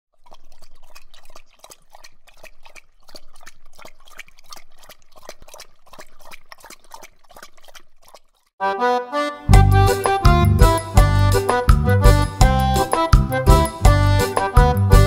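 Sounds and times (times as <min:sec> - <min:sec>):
watery drip-like pops: 0:00.1 - 0:08.5.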